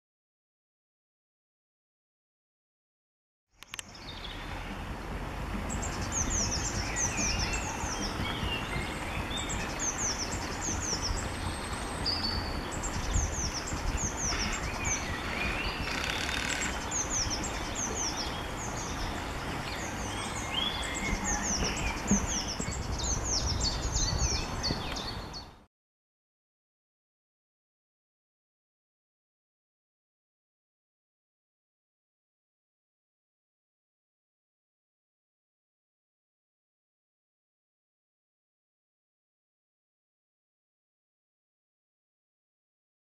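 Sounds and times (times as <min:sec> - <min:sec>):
birds singing: 0:03.5 - 0:04.9, 0:05.7 - 0:25.7
flowing water: 0:03.6 - 0:25.7
wind rumble on microphone: 0:03.7 - 0:25.7.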